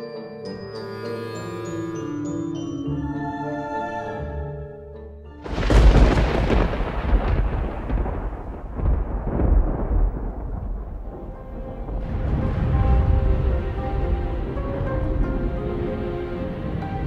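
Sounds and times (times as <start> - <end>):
dark music: 0.0 - 17.0
thunderclap and rolling rumble: 5.5 - 17.0.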